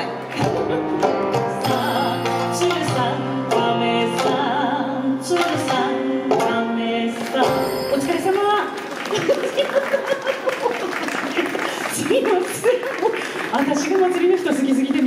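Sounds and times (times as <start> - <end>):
woman singing into a microphone: 0.0 - 8.7
instrumental accompaniment over loudspeakers: 0.0 - 9.3.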